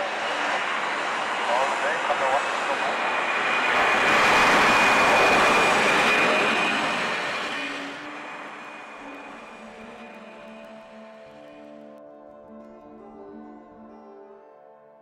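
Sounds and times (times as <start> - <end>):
jet airliner flyby: 0.0 - 11.8.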